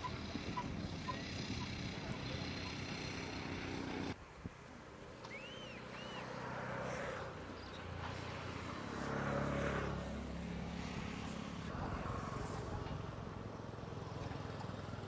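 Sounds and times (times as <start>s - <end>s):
low engine hum: 5.0s - 15.0s
bird chirping: 5.2s - 6.3s.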